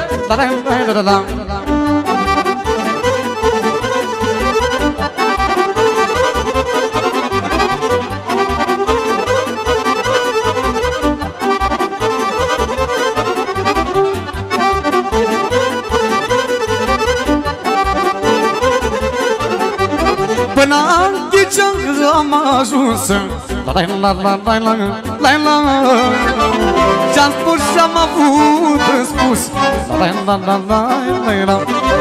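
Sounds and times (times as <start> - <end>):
accordion fast melody: 0.0 - 32.0
keyboard accompaniment: 0.0 - 32.0
steady bass beat: 1.3 - 21.1, 25.6 - 30.1.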